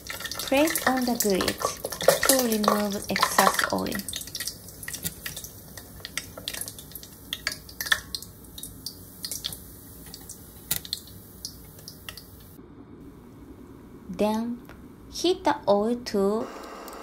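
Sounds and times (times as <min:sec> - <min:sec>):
fried food crackling and popping: 0:00.0 - 0:12.6.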